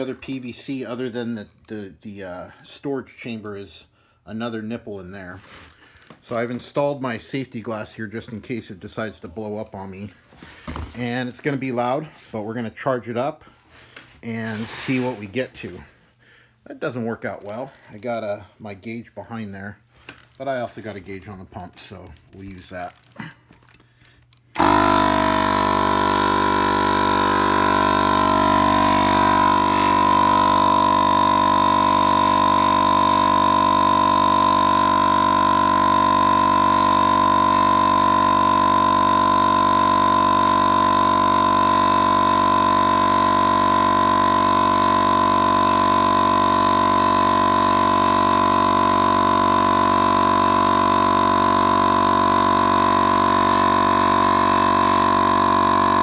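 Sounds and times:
air compressor whining: 0:20.0 - 0:56.0.

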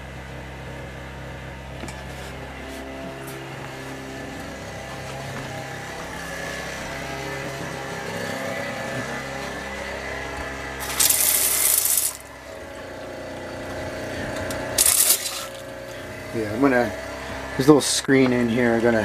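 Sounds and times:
motor hum: 0:00.0 - 0:19.0
faucet water rushing: 0:10.8 - 0:12.2, 0:14.8 - 0:15.7.

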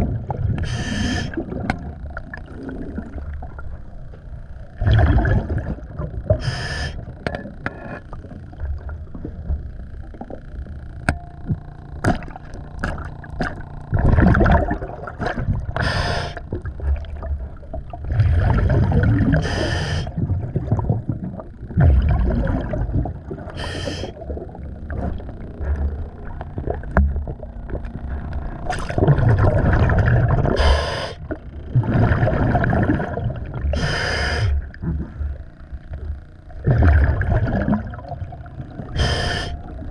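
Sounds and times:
exhaled bubbles rushing: 0:00.0 - 0:03.8, 0:04.7 - 0:06.4, 0:12.0 - 0:33.9, 0:36.6 - 0:39.9
regulator hissing inhale: 0:00.6 - 0:01.4, 0:06.4 - 0:07.1, 0:15.8 - 0:16.5, 0:19.3 - 0:20.2, 0:23.5 - 0:24.2, 0:30.5 - 0:31.4, 0:33.7 - 0:34.7, 0:39.0 - 0:39.7.

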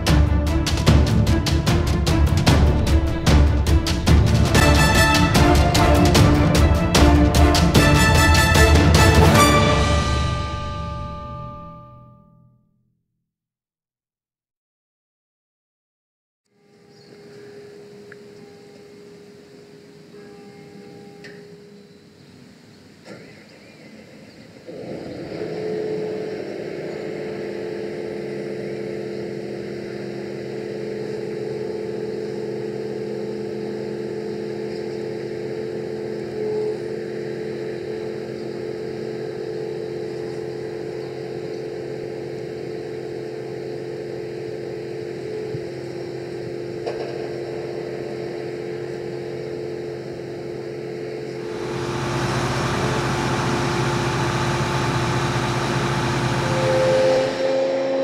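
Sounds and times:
combine harvester running: 0:00.0 - 0:11.7, 0:50.2 - 0:57.7.

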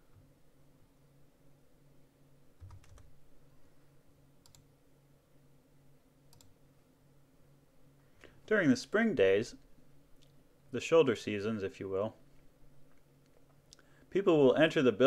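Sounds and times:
faint low hum: 0:00.0 - 0:15.0
faint keyboard clicks: 0:02.6 - 0:03.1, 0:04.4 - 0:04.7, 0:06.3 - 0:06.6.

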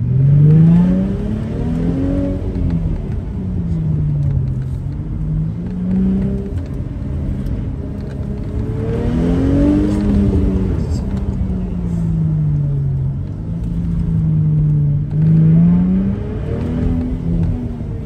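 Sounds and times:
car engine revving: 0:00.0 - 0:18.0
low rumble of road noise: 0:00.0 - 0:18.0.

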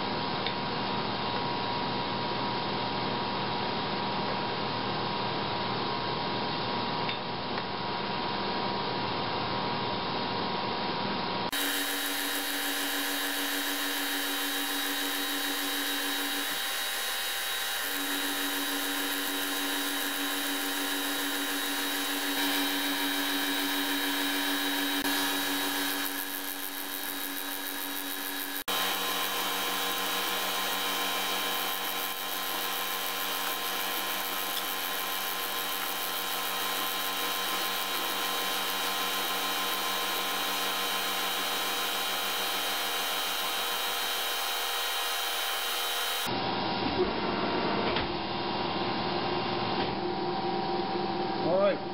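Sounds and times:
milling machine cutting steel: 0:11.5 - 0:46.3.

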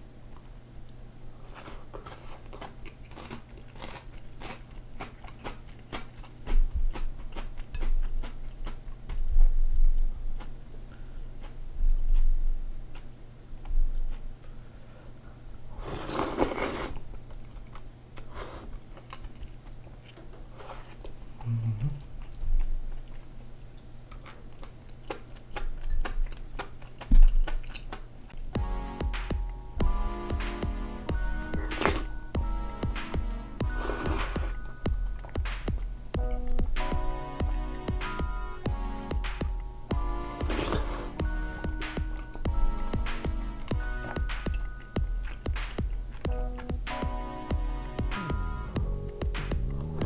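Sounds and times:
person chewing: 0:01.4 - 0:14.5, 0:15.8 - 0:30.4, 0:31.2 - 0:32.4, 0:33.6 - 0:37.1, 0:38.1 - 0:47.2
noodles being slurped: 0:40.4 - 0:41.2.

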